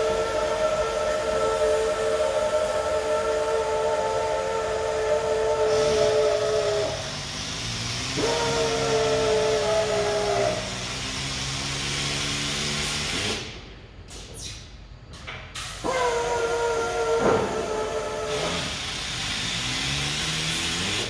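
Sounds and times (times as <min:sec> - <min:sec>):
compressed air hiss: 0:00.0 - 0:13.6
air motor whining: 0:00.0 - 0:14.1, 0:15.6 - 0:21.0.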